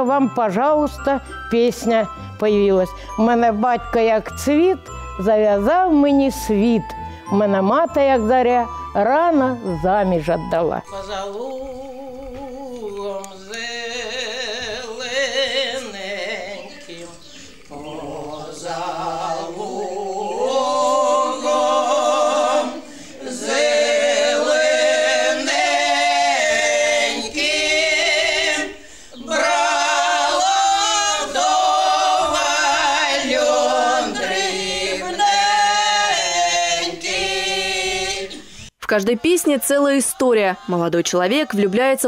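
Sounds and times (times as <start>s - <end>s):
women's ensemble singing a cappella: 10.8s - 38.6s, 39.4s - 42.0s.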